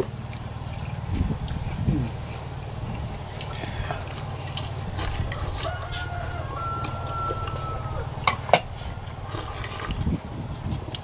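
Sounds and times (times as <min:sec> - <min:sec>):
steady low hum: 0:00.0 - 0:11.0
rooster crowing: 0:04.9 - 0:09.7.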